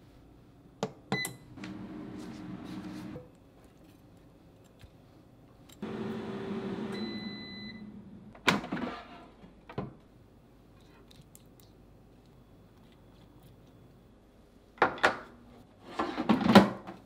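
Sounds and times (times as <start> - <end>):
air fryer fan humming: 1.1 - 3.2, 5.8 - 8.4.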